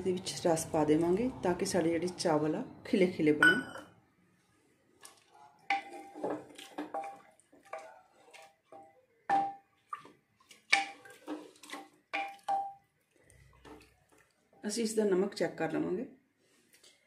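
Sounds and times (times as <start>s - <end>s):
wooden spatula clunking against pot: 5.7s - 12.8s.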